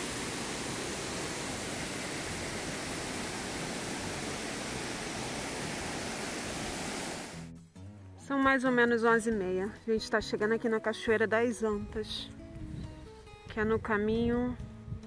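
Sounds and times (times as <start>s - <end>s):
waterfall and stream rushing: 0.0s - 7.4s.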